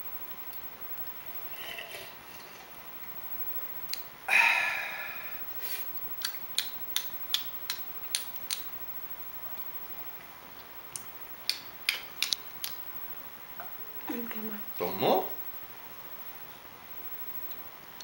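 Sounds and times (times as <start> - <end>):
person sipping from a mug: 1.5 - 2.7
person sighing aah: 4.3 - 5.4
sharp clicks: 6.2 - 8.7, 10.9 - 12.8.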